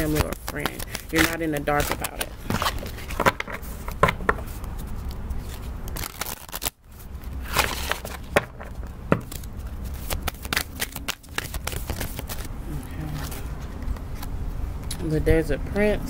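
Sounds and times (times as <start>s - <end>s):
playing cards being shuffled: 0.0s - 14.3s.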